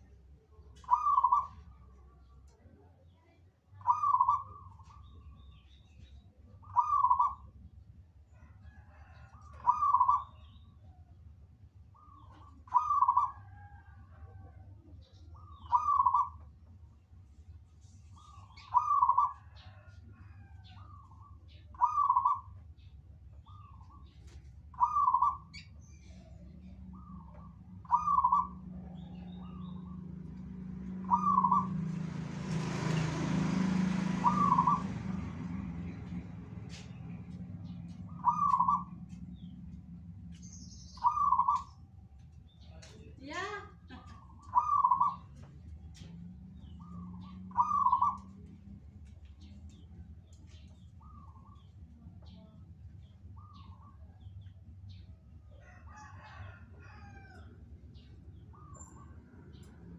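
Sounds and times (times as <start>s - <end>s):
small birds chirping: 0.0s - 7.8s, 11.9s - 59.9s
dove cooing: 0.8s - 1.9s, 3.8s - 5.0s, 6.6s - 7.5s, 8.7s - 10.4s, 12.0s - 14.4s, 15.4s - 16.4s, 18.6s - 20.9s, 21.7s - 22.6s, 24.8s - 35.3s, 38.0s - 39.5s, 41.0s - 41.7s, 44.0s - 48.5s.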